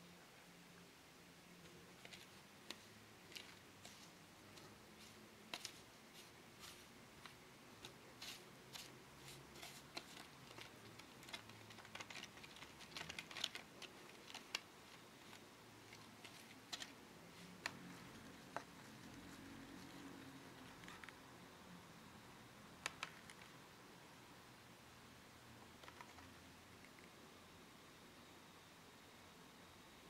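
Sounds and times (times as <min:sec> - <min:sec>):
plastic spoon stirring in tray: 0:02.0 - 0:20.0.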